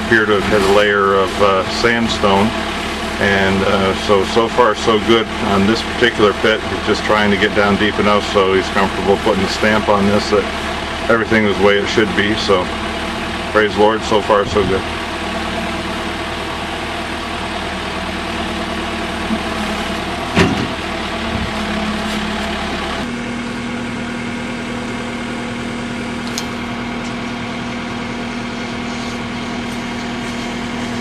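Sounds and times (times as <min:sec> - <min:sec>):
diesel engine idling: 0:00.0 - 0:31.0.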